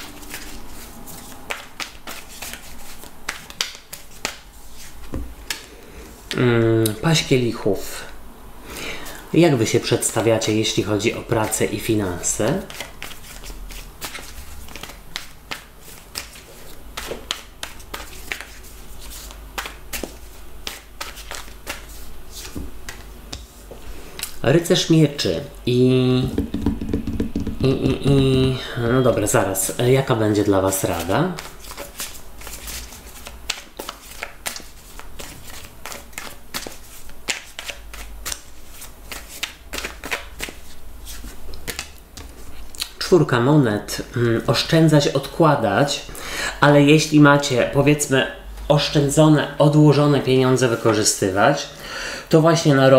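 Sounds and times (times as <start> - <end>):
cards shuffled by hand: 0.0 - 6.6, 12.4 - 23.5, 30.7 - 42.5.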